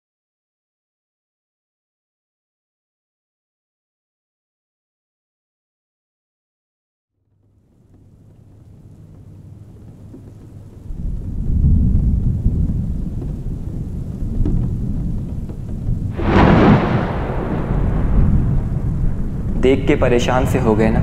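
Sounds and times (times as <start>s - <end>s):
rain: 7.3s - 21.0s
low rumble of thunder: 8.0s - 21.0s
sharp thunderclap: 10.9s - 21.0s.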